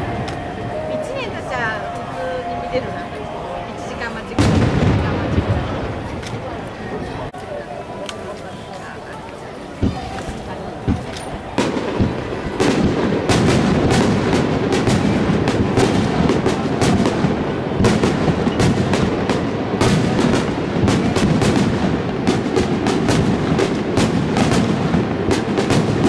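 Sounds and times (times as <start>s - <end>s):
music playing: 0.0s - 4.5s
fireworks bangs and crackles: 2.7s - 26.0s.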